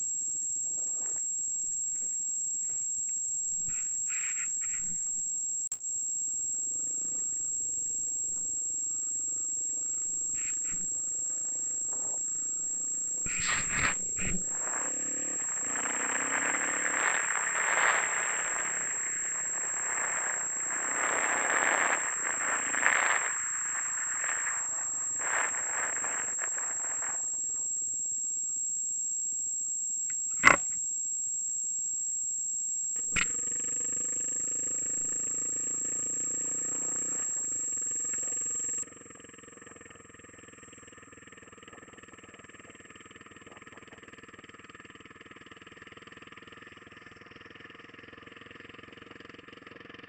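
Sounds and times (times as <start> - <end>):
high-pitched whine: 0.0 - 45.6
motorcycle engine running: 13.7 - 23.1, 38.2 - 50.0
sharp clicks: 30.0 - 30.8.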